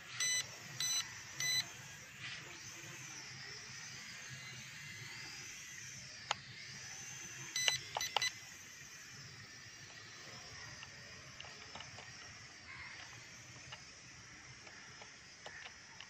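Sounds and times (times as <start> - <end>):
toy quadcopter motors whining: 0.0 - 16.0
short beeps: 0.2 - 1.7, 7.6 - 8.3
sharp click: 7.6 - 8.3.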